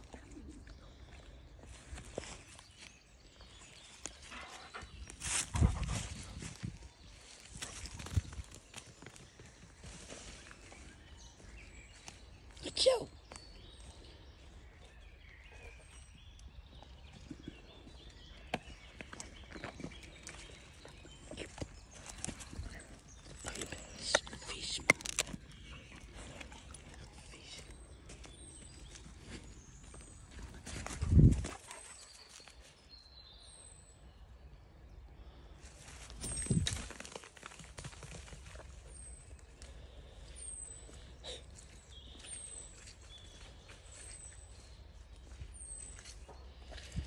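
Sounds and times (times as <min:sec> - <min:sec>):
footsteps on path: 0:00.7 - 0:32.5.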